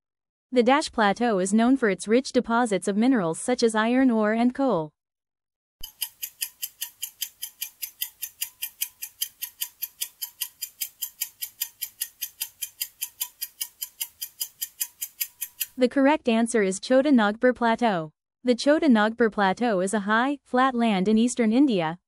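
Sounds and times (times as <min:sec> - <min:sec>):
clock ticking quickly: 0:05.8 - 0:15.8.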